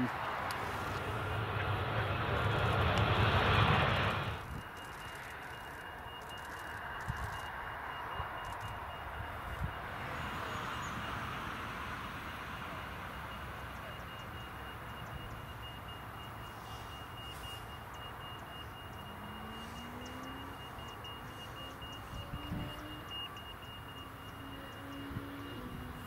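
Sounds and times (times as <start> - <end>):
faint rising tone: 0.0 - 14.7
distant jet engines taxiing: 0.0 - 26.0.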